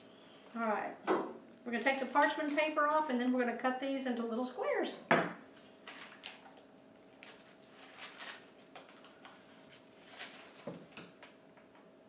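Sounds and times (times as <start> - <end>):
faint steady hum: 0.0 - 12.0
parchment paper rustling: 1.7 - 2.7, 5.6 - 11.3.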